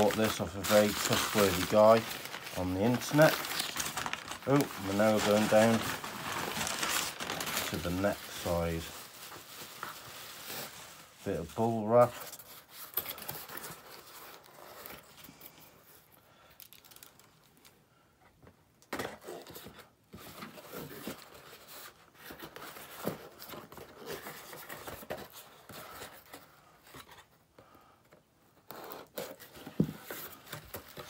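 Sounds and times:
tape tearing: 0.0s - 8.6s
cardboard scraping and rustling: 0.0s - 15.2s.

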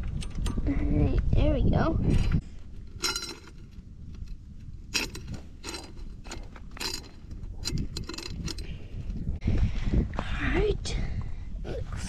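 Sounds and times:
roller chain clicking and rattling: 2.7s - 9.4s.

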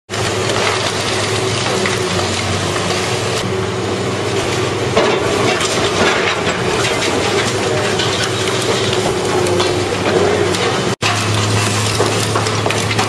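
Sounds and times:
heavy machinery diesel engine: 0.1s - 13.0s.

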